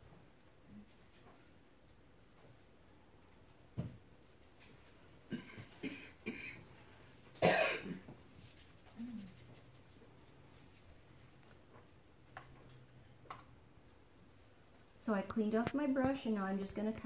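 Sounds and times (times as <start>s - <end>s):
person coughing loudly: 5.3s - 6.7s, 7.4s - 8.1s.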